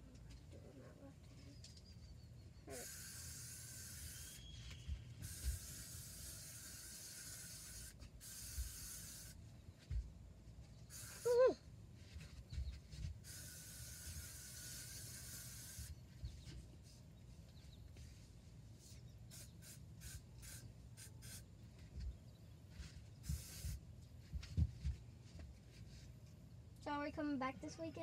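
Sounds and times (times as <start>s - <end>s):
aerosol spray hissing: 2.7s - 4.4s, 5.2s - 9.4s, 10.9s - 11.5s, 13.2s - 16.0s, 19.3s - 21.4s, 23.2s - 23.8s.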